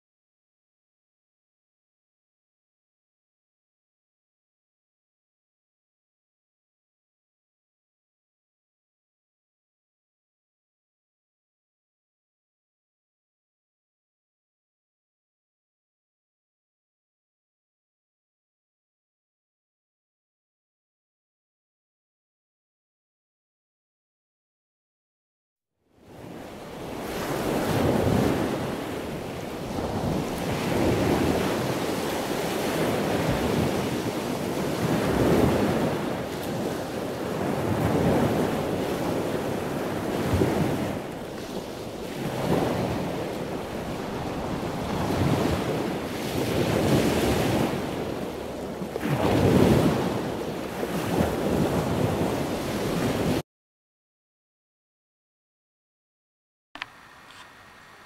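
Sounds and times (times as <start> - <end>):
ocean waves breaking: 26.0 - 53.4.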